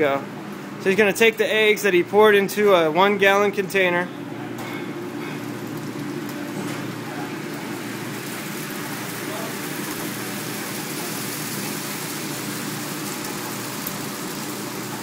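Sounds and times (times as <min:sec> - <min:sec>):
eggs sizzling on a griddle: 0:05.2 - 0:15.0.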